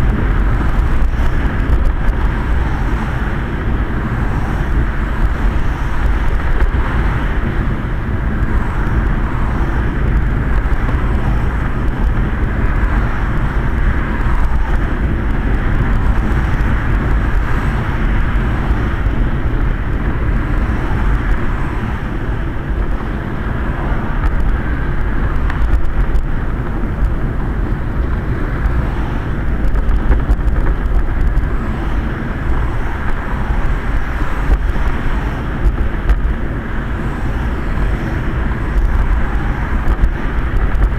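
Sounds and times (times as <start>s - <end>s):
road traffic: 0.0s - 40.9s
rumble and hiss on wet road: 0.0s - 40.9s.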